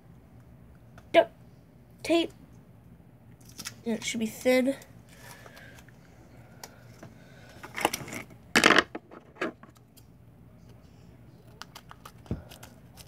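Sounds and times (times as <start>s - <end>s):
handling noises: 7.6s - 9.8s.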